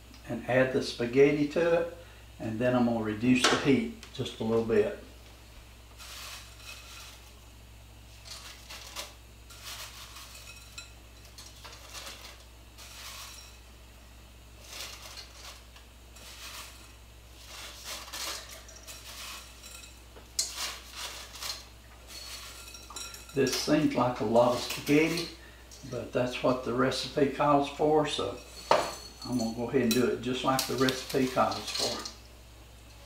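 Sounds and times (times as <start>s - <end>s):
dry spaghetti clinking against glass: 21.5s - 23.6s.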